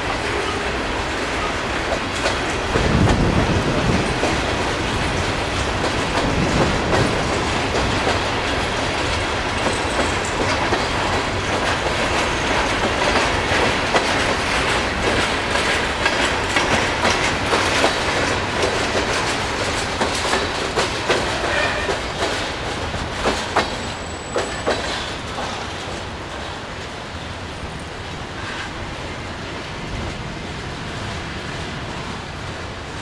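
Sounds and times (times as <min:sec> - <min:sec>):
train rumble: 0:00.0 - 0:33.0
train wheels clicking over rail joints: 0:00.9 - 0:28.8
high wheel squeal: 0:23.8 - 0:25.2.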